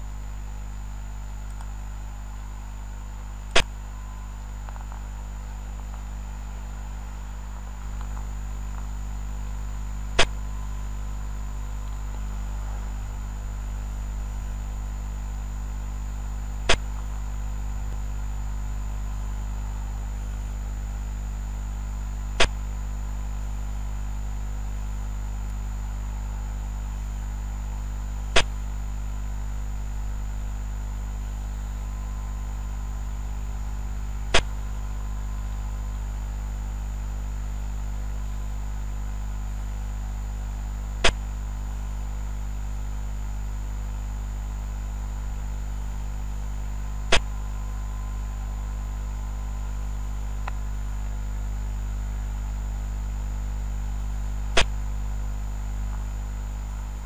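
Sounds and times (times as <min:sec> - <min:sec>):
faint high whine: 0:00.0 - 0:57.0
low mains hum: 0:00.0 - 0:57.0.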